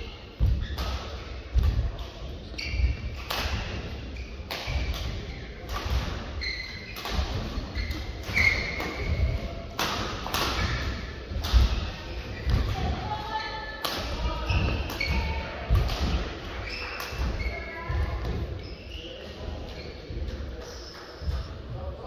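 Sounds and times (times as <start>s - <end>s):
shoes squeaking on court: 0.4s - 5.4s, 6.4s - 9.4s, 16.6s - 21.6s
racket striking shuttlecock: 7.0s - 11.8s.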